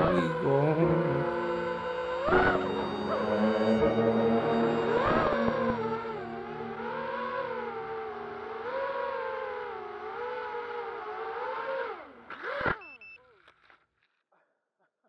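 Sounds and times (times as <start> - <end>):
drone motors whining: 0.0 - 12.8
high beep: 2.3 - 5.9.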